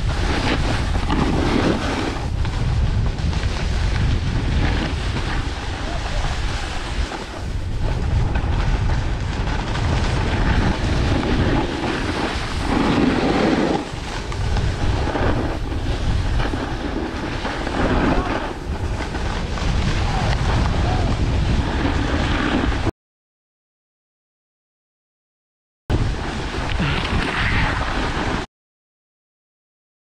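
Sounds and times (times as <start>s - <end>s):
skis scraping on snow: 0.0s - 22.9s, 25.9s - 28.5s
wind buffeting microphone: 0.0s - 22.9s.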